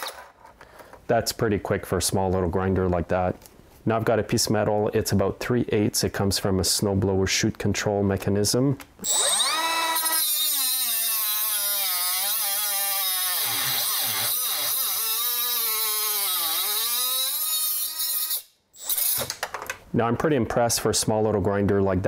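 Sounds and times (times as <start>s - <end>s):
cut-off tool cutting metal bar: 0.0s - 0.3s, 9.0s - 19.3s.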